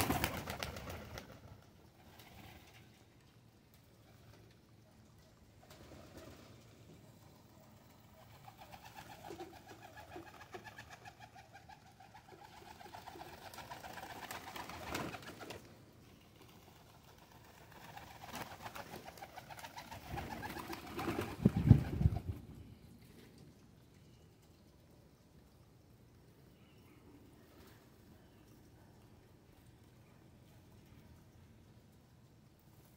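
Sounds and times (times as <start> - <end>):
pigeons cooing: 8.2 - 15.5.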